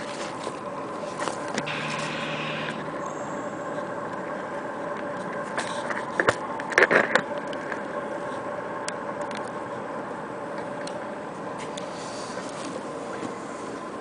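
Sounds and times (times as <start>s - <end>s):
outboard motor humming: 0.7s - 4.9s.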